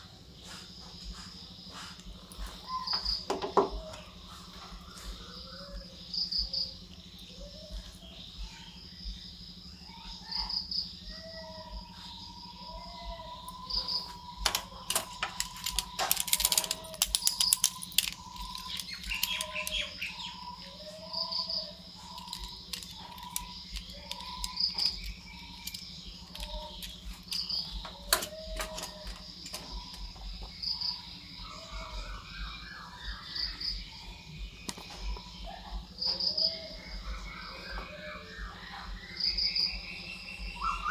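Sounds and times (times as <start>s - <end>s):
crickets chirping: 0.0s - 40.9s
plastic parts clicking and rattling: 14.4s - 20.2s, 22.0s - 30.1s.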